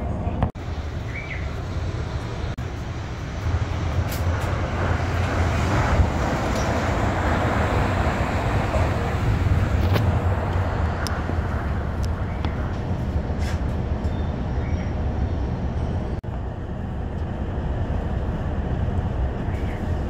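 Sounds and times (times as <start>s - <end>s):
monorail train rumbling: 0.0s - 20.0s.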